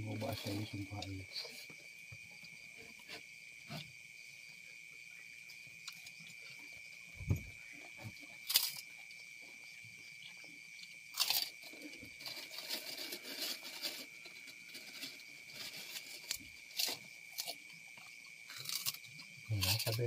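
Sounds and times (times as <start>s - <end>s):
insect chirring: 0.0s - 20.0s
crackers crunching: 8.4s - 8.9s, 11.1s - 17.7s, 18.5s - 20.0s.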